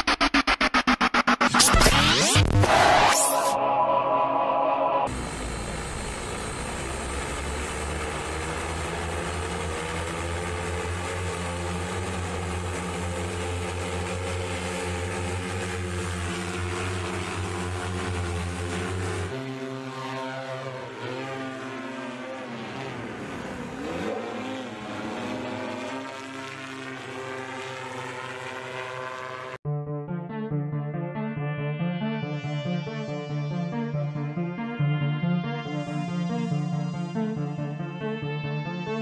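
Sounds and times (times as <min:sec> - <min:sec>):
high whine: 0:00.0 - 0:22.8
hoverbike propellers buzzing: 0:05.1 - 0:29.6.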